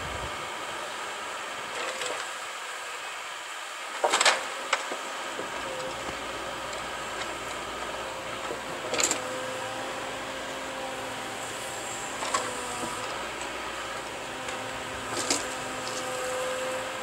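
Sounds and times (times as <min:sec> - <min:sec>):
forwarder engine humming: 0:00.0 - 0:02.1.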